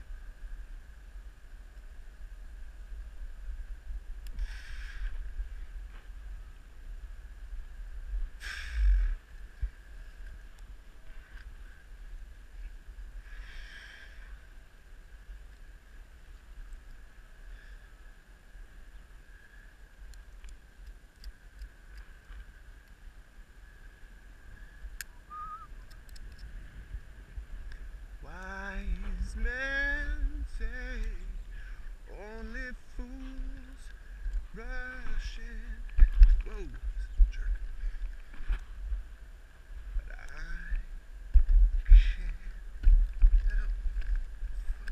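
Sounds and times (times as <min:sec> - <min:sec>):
wind rumble on microphone: 0:00.0 - 0:44.9
small clicks: 0:20.1 - 0:22.1, 0:25.8 - 0:26.5
faint steady high tone: 0:24.6 - 0:26.0
low rumble: 0:26.5 - 0:44.9
man singing wordless tune: 0:28.2 - 0:31.5, 0:32.1 - 0:33.9, 0:34.5 - 0:37.5.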